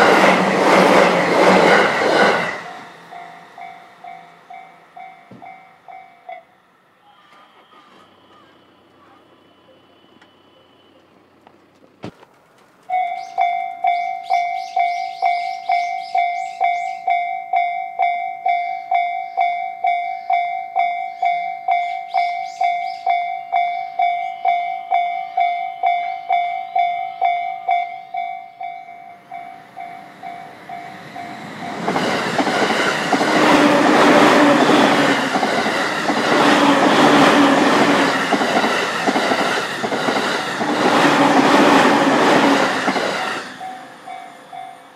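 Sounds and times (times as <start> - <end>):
train wheels clattering on rails: 0.0 - 6.4, 29.3 - 44.9.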